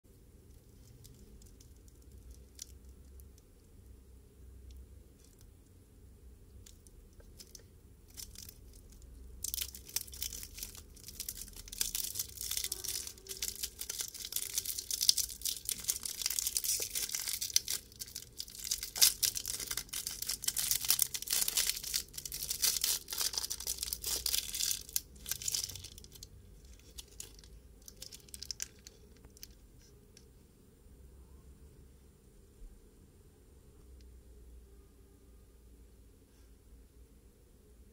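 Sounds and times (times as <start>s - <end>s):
plastic wrapper crinkling and tearing: 0.6s - 3.4s, 6.6s - 29.6s.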